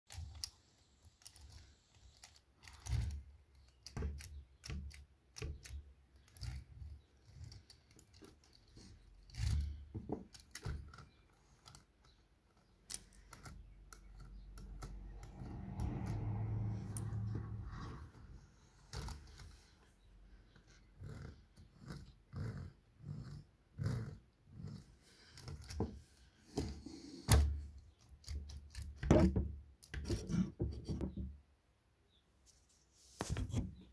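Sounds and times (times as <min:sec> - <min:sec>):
plastic parts clicking and knocking: 0:00.1 - 0:16.2, 0:25.1 - 0:31.4.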